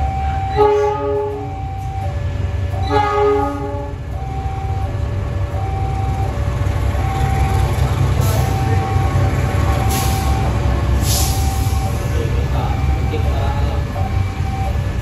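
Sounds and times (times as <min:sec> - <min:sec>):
level-crossing alarm two-tone chime: 0:00.0 - 0:03.4, 0:04.1 - 0:06.4, 0:07.0 - 0:10.4, 0:11.4 - 0:15.0
freight train wagons rumbling: 0:00.0 - 0:15.0
train horn blast: 0:00.5 - 0:01.5, 0:02.8 - 0:04.0.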